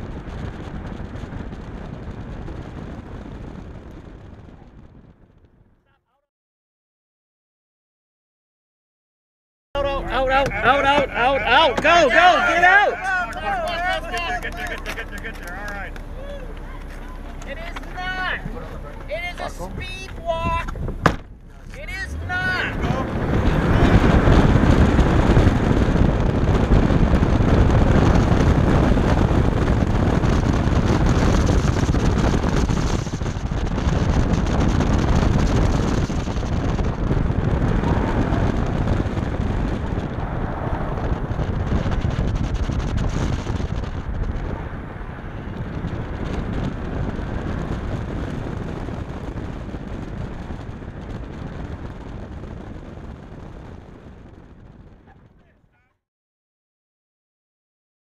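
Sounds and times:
wind noise in car cabin: 0.0s - 6.2s, 9.8s - 55.9s
tyre noise: 9.8s - 52.1s
car engine revving hard: 21.6s - 42.2s.

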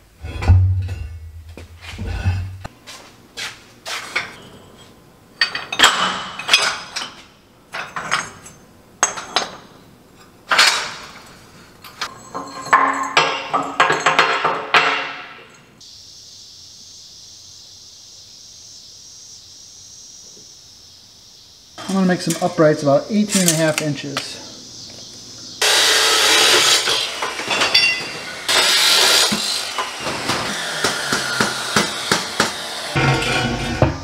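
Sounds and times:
scrap metal pipes clanking: 0.1s - 2.7s, 12.0s - 14.8s, 33.0s - 34.0s
steady high hiss: 15.4s - 30.1s.

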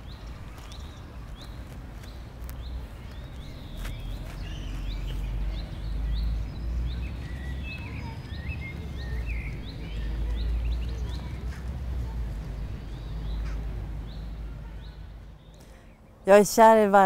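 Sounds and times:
songbirds chirping and warbling: 0.0s - 17.0s.

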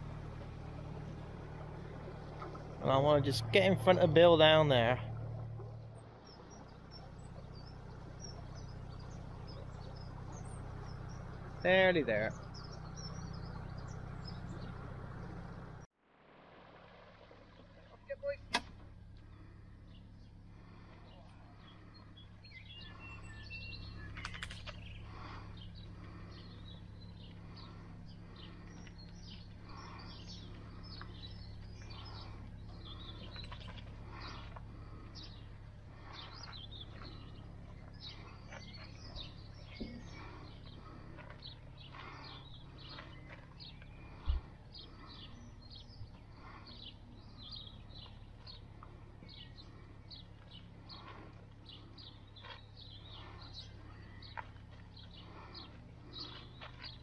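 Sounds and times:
songbirds chirping: 0.0s - 15.9s, 17.2s - 57.0s
steady low hum: 0.0s - 57.0s
person breathing: 24.9s - 28.8s.

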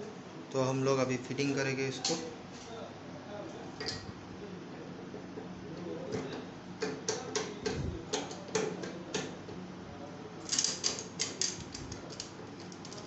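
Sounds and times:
steady low hum: 7.5s - 13.0s
sharp metal clicks and knocks: 10.5s - 13.0s.

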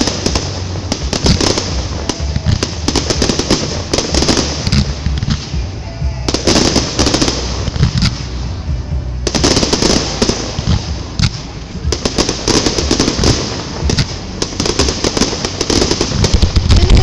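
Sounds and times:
fireworks booming: 0.0s - 17.0s
fireworks popping and crackling: 0.0s - 17.0s.

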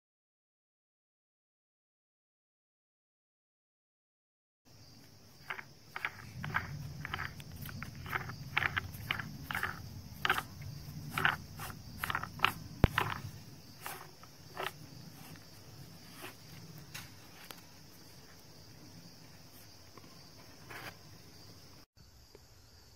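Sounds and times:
high insect drone: 4.7s - 22.9s.

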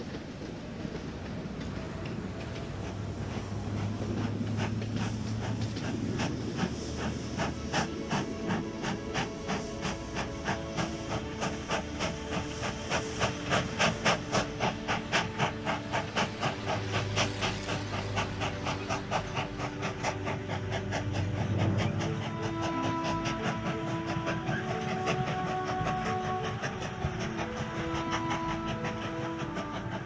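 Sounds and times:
steam hissing: 0.0s - 30.0s
steam locomotive chuffing: 0.0s - 30.0s.

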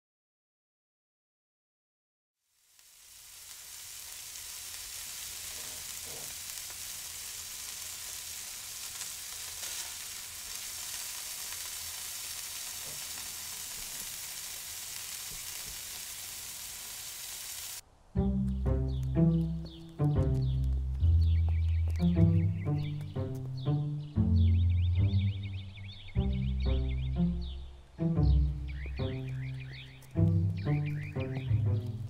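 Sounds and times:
food sizzling in a pan: 2.4s - 17.8s.

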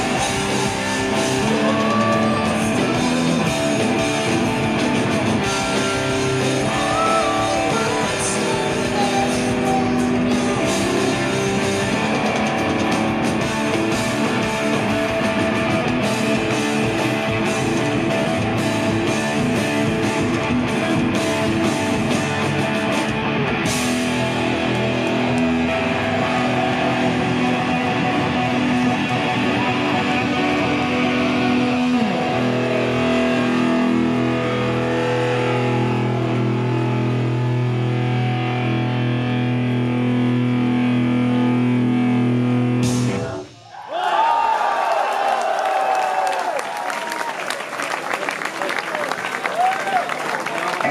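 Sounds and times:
drums and cymbals: 0.0s - 26.5s
electric guitar: 0.0s - 43.6s.

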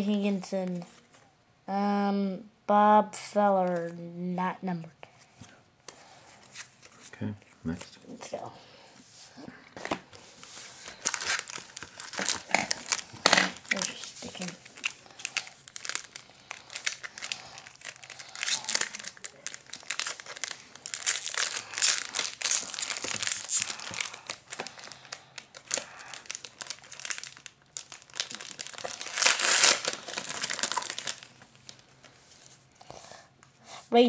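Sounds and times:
foil wrappers crinkling and tearing: 9.8s - 32.6s.

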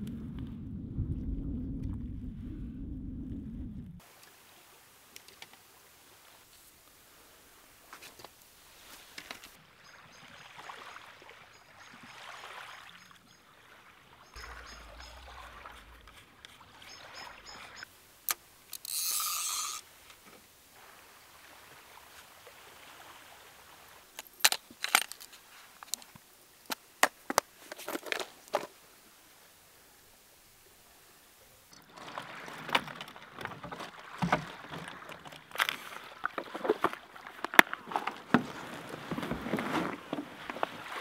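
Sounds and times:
plastic tackle box rattling: 31.8s - 40.3s.

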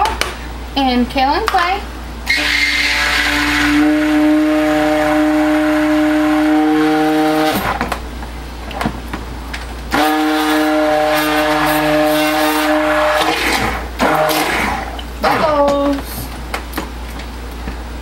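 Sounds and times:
stick blender whirring: 2.3s - 7.9s, 9.9s - 15.8s.

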